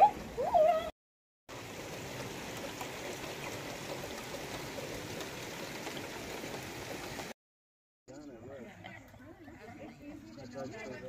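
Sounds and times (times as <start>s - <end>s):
steady rain on grass and trees: 1.5s - 7.4s.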